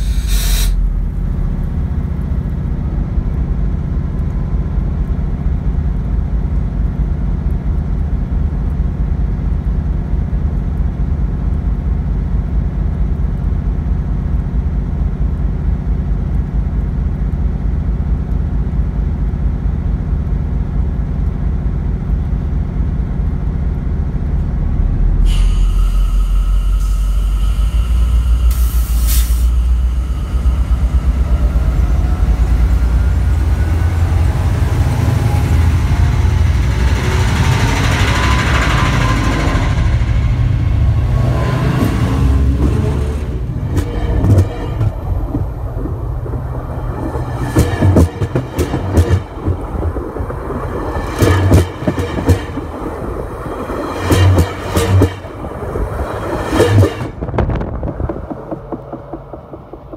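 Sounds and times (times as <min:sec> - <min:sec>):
air hiss burst: 0:00.0 - 0:00.9, 0:25.2 - 0:30.7
diesel locomotive idling: 0:00.0 - 0:59.9
high whine: 0:00.0 - 0:59.9.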